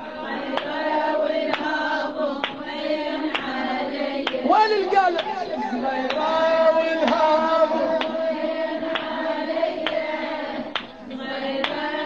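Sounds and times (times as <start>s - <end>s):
woman chanting a lament: 3.0s - 8.2s
sharp rhythmic beat: 4.3s - 10.9s.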